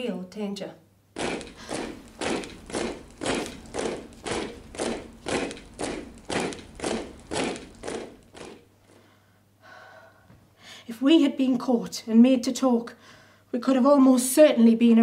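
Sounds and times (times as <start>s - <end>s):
heavy marching thuds: 1.2s - 8.8s.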